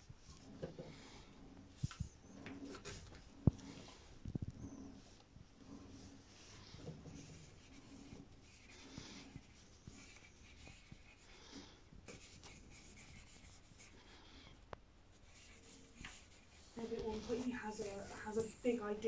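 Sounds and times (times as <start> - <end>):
pencil scratching on paper: 6.6 - 14.2, 15.1 - 19.0.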